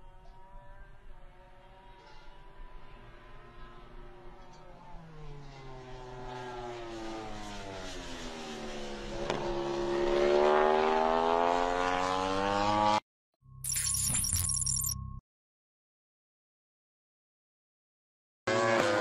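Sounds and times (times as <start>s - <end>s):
racing motorcycle engine: 0.0s - 13.0s, 18.5s - 19.0s.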